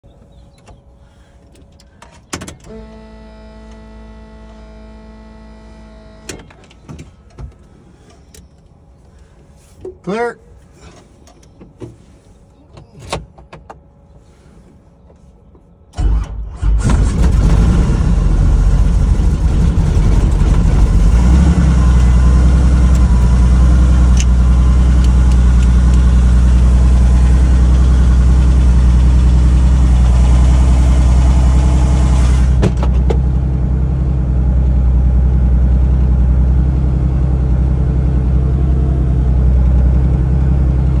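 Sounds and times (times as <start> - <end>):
deep low rumble: 16.8 - 41.0.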